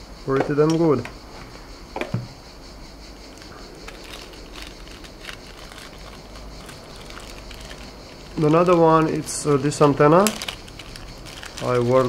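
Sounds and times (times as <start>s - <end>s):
plastic packaging crinkling: 3.3s - 12.0s.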